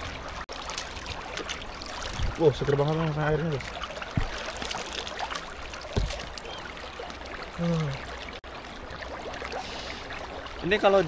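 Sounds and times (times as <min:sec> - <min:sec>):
river water trickling over stones: 0:00.0 - 0:11.0
low thump: 0:05.9 - 0:06.2
brief vocal sound: 0:07.6 - 0:08.1.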